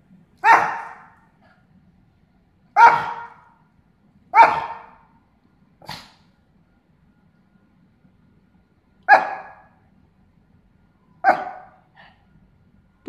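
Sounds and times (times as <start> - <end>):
small dog barking: 0.4 - 1.2, 2.8 - 3.6, 4.3 - 5.1, 5.8 - 6.2, 9.1 - 9.8, 11.2 - 11.9.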